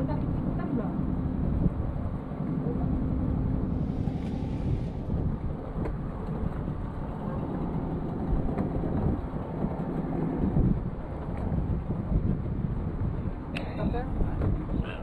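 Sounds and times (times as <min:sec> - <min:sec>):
low rumble on water: 0:00.0 - 0:15.0
wind buffeting microphone: 0:00.0 - 0:15.0
knocks on wooden boat: 0:14.4 - 0:14.8.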